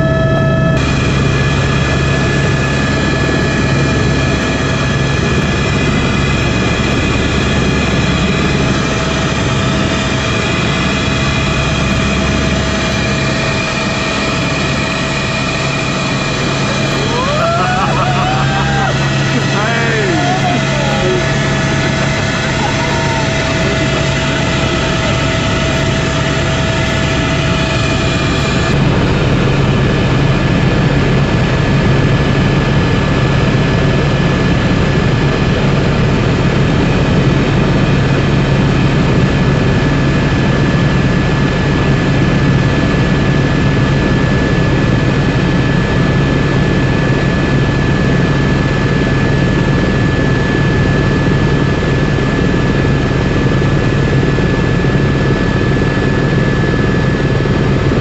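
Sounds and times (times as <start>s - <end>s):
high whine: 0.0s - 31.4s
helicopter engine and rotor drone: 0.0s - 58.0s.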